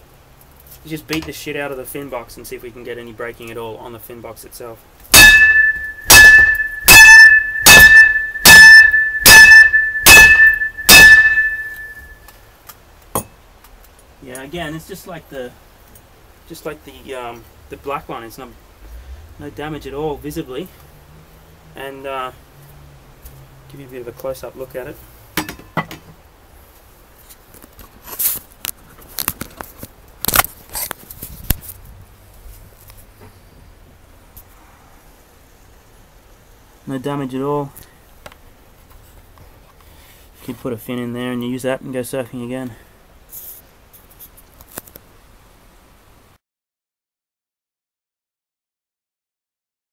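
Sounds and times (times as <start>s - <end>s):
ringing tone: 5.2s - 12.2s.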